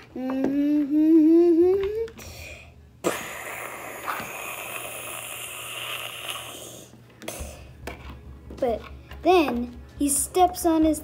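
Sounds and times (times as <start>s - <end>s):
child raspy hissing breath: 2.2s - 7.7s.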